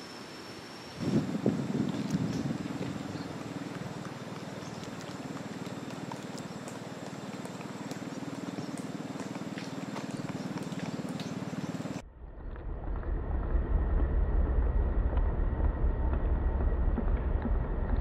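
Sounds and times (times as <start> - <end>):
deep rumble: 1.0 - 5.0, 11.9 - 18.0
low pulsing drone: 1.0 - 18.0.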